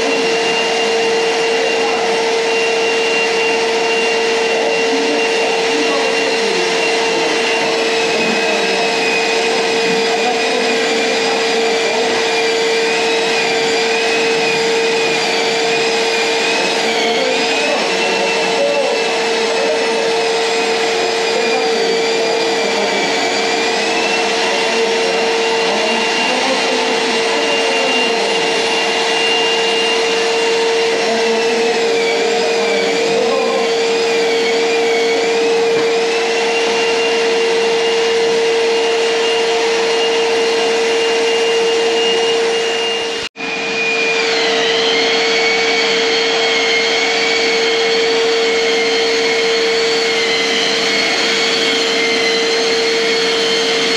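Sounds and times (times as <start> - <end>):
drywall sander whining: 0.0 - 53.9
vacuum running: 0.0 - 53.9.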